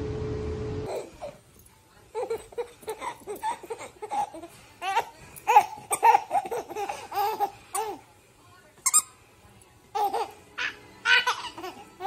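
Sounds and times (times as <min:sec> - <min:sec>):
infant laughing: 0:02.2 - 0:08.0, 0:10.0 - 0:12.0.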